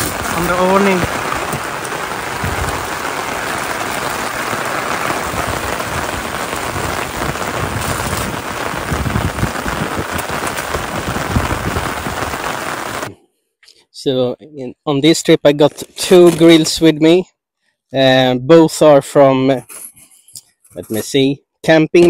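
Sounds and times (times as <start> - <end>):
rain on an awning: 0.0 - 13.1.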